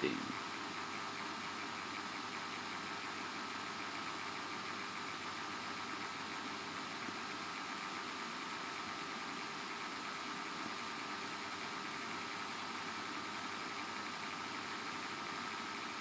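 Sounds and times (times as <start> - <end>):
background hum and hiss: 0.0 - 0.5.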